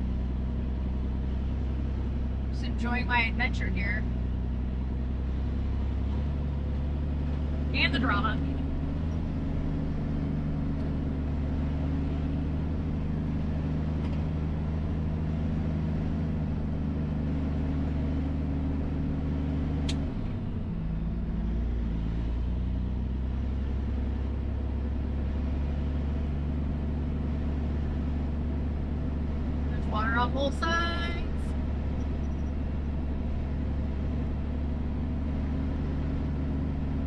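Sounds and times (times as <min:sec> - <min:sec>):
diesel truck engine running: 0:00.0 - 0:37.0.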